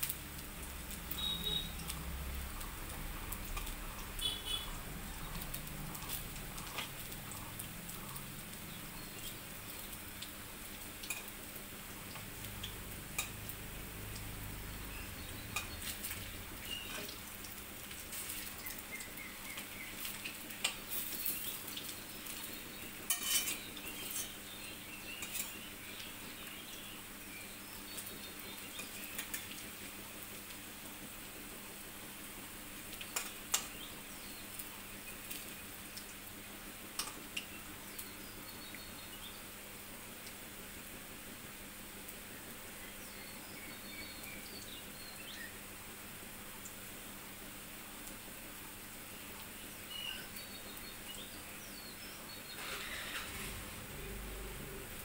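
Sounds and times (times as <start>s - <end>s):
fritters sizzling in hot oil: 0.0s - 55.0s
spatula scraping and clinking pan: 23.1s - 24.4s, 25.2s - 25.6s.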